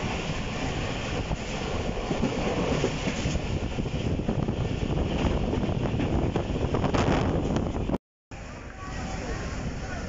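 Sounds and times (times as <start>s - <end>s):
wind buffeting microphone: 0.0s - 8.0s
train wheels rumbling: 0.0s - 10.0s.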